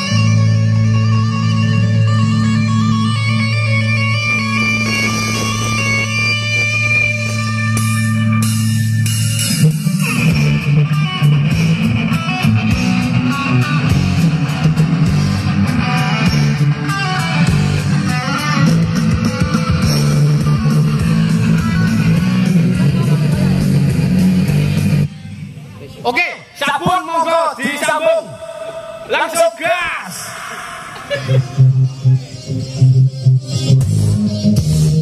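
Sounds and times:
loud music with heavy bass: 0.0s - 25.2s, 30.0s - 35.0s
low droning note: 2.3s - 9.3s.

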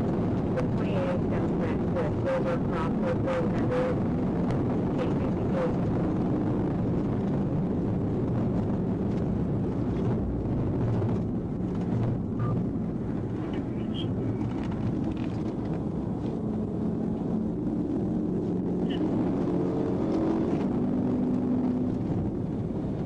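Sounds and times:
car engine tyre and wind rumble: 0.0s - 23.0s.

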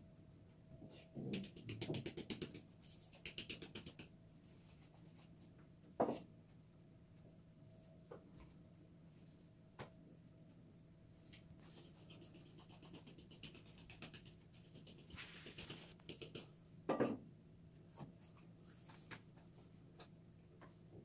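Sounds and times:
light scratchy rubbing: 11.6s - 16.4s.

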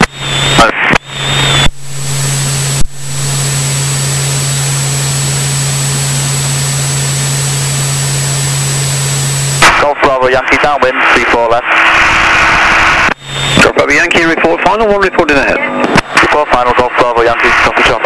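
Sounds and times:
aircraft engine and propeller drone: 0.1s - 9.6s.

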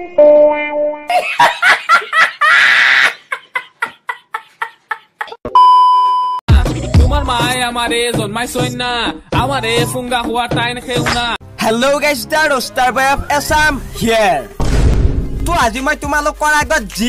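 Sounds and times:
woman laughing loudly: 1.1s - 5.4s
high test-card beep: 5.6s - 6.4s
music with heavy beat: 6.5s - 11.3s.

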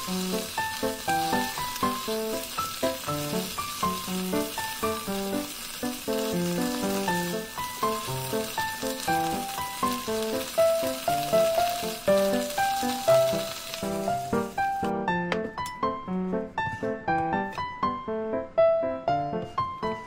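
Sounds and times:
vegetables sizzling in oil: 0.0s - 15.0s
light background music: 0.0s - 20.0s.

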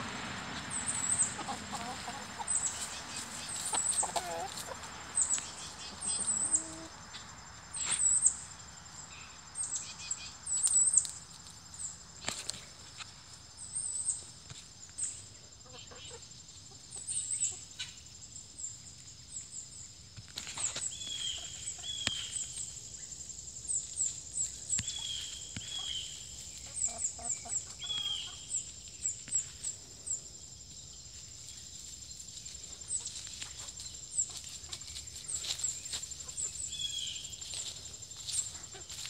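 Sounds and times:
chickens clucking: 0.0s - 8.0s, 15.6s - 18.0s, 20.4s - 22.7s, 23.8s - 28.7s, 32.7s - 36.8s, 37.4s - 39.0s.

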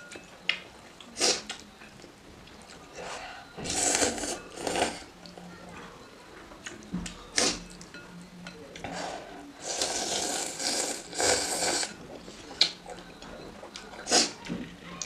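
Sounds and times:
person slurping noodles: 9.0s - 11.9s, 14.0s - 14.4s.

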